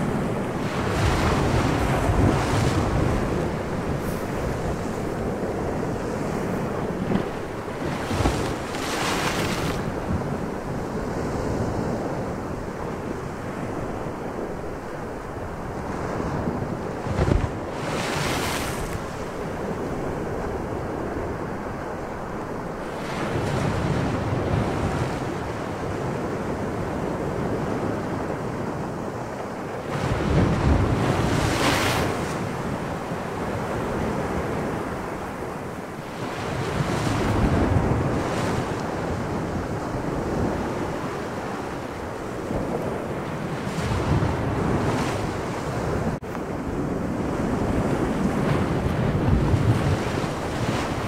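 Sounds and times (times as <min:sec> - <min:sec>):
ocean waves breaking: 0:00.0 - 0:51.0
wind: 0:00.0 - 0:51.0.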